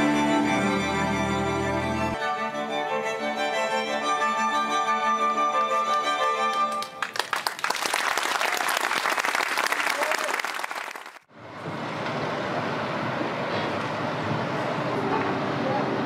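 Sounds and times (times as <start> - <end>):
audience applauding: 5.8 - 11.3.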